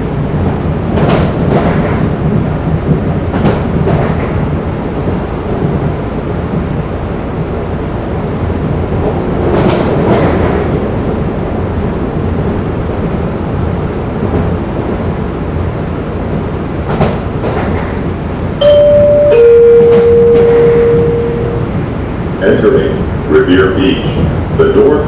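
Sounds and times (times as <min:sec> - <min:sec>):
subway wheels rumbling on rail: 0:00.0 - 0:25.0
electronic chime: 0:18.6 - 0:21.8.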